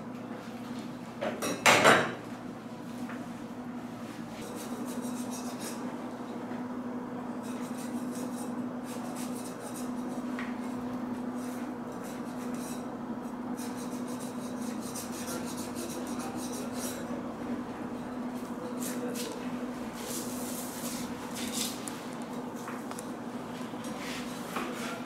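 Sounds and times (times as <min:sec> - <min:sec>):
steady low hum: 0:00.0 - 0:25.0
knife scraping and slicing meat: 0:04.4 - 0:05.8.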